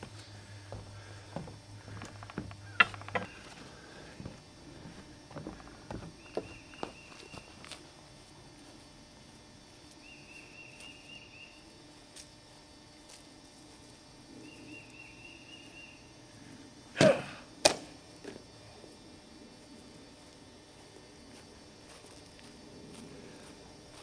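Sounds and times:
sharp crack: 17.0 - 18.0.

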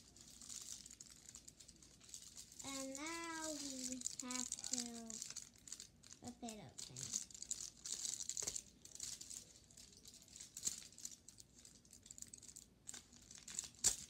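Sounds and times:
foil wrapper crinkling and tearing: 0.0 - 14.0.

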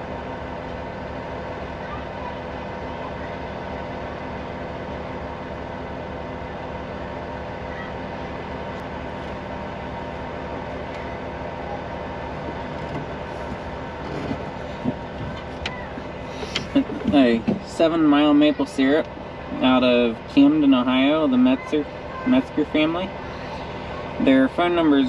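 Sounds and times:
excavator diesel engine idling: 0.0 - 25.0.

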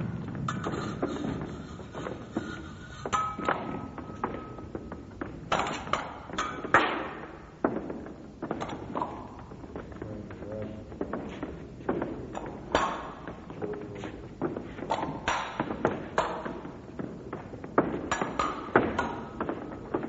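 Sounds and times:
footwork thuds on floor: 0.0 - 20.0
fencing blades clashing: 0.3 - 9.7, 11.8 - 13.5, 14.4 - 17.1, 17.8 - 20.0.

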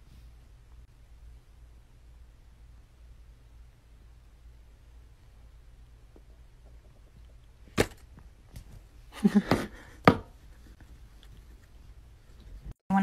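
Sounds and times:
plastic cup knocking: 9.4 - 10.3.

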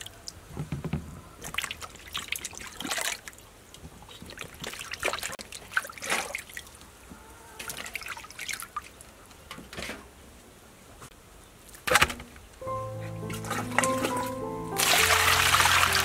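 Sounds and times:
water splashing in metal basin: 13.3 - 16.0.

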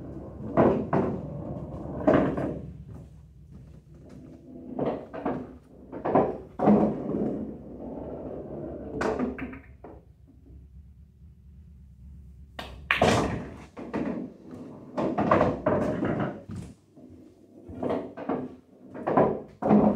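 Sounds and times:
cue striking ball: 0.0 - 2.8.

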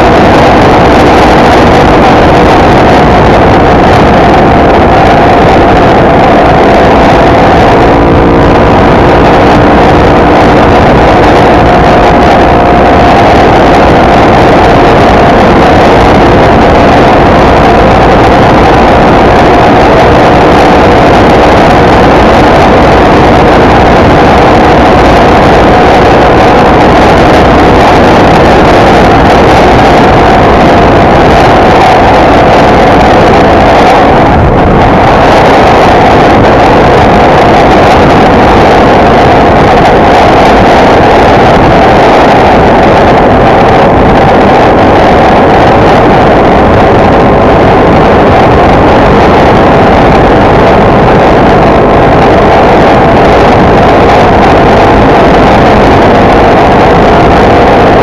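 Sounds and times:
motorcycle engine running: 0.0 - 45.6
wind and road rush: 0.0 - 58.0.

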